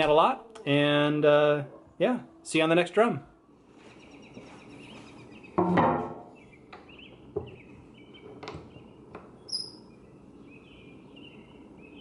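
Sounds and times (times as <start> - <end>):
songbirds chirping: 0.0 - 12.0.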